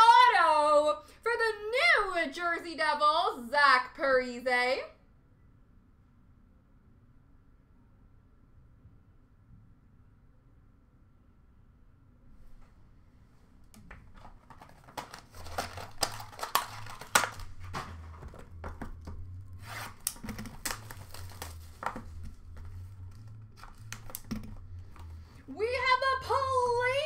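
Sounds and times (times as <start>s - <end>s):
plastic wrap crackling: 13.7s - 25.4s.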